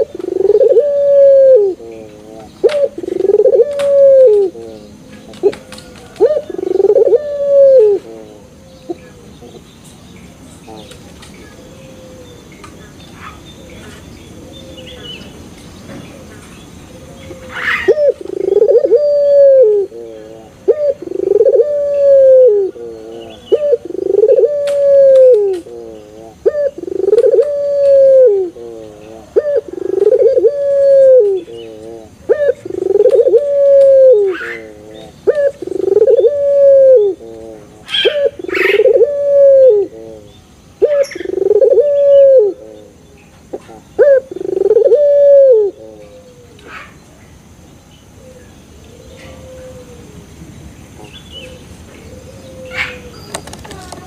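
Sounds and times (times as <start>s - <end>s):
dove cooing: 0.0s - 9.6s, 10.6s - 12.5s, 16.1s - 47.0s, 48.2s - 50.3s, 51.0s - 54.0s.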